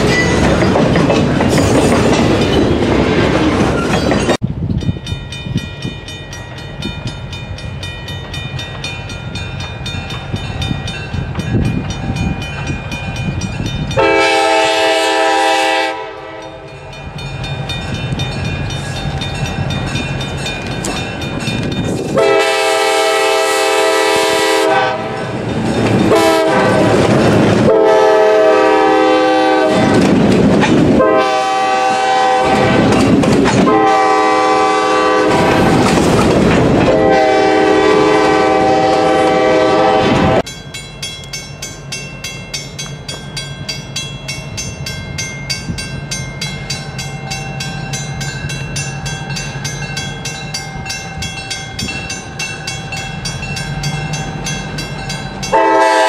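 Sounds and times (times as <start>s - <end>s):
locomotive horn blasts: 14.0s - 16.7s, 22.2s - 25.3s, 26.1s - 27.0s, 27.7s - 30.0s, 31.0s - 33.0s, 33.6s - 35.7s, 36.9s - 40.4s, 55.5s - 56.0s.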